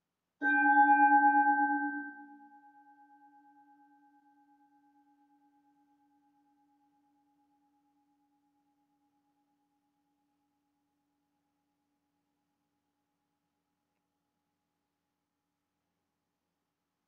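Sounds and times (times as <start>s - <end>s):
singing bowl ringing: 0.4s - 3.9s.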